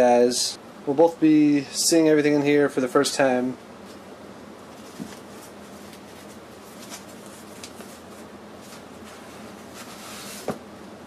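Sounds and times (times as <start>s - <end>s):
steady low hum: 0.0s - 11.0s
cardboard and paper scrapes: 4.8s - 10.6s.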